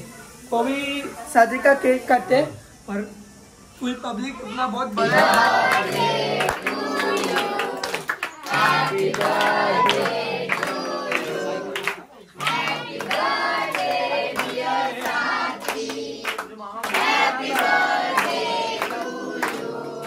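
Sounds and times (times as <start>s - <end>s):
group singing birthday song: 4.8s - 20.0s
people clapping along: 5.0s - 20.0s.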